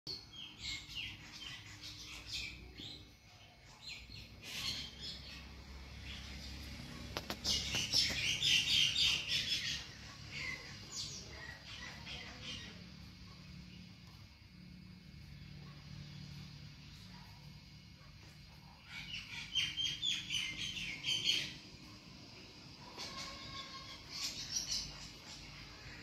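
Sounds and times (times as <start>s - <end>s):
small birds chirping: 0.1s - 26.0s
faint low hum: 0.2s - 19.4s.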